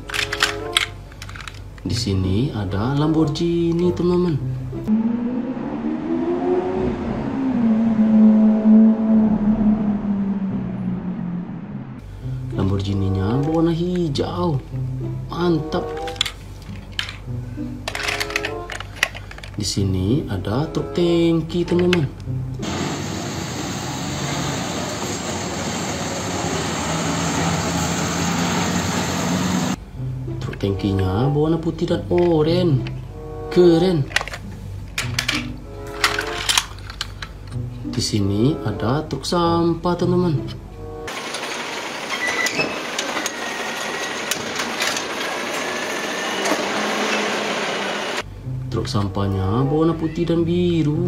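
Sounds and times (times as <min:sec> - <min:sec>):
truck engine drone: 0:04.5 - 0:13.4, 0:22.3 - 0:30.3, 0:40.6 - 0:48.5.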